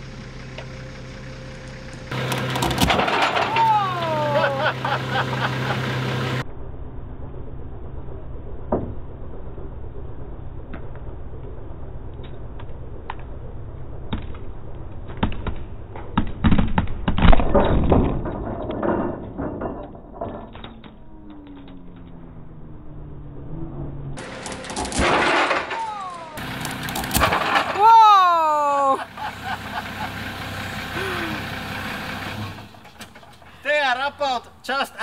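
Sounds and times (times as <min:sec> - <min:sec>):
low rumble: 0:06.4 - 0:24.7.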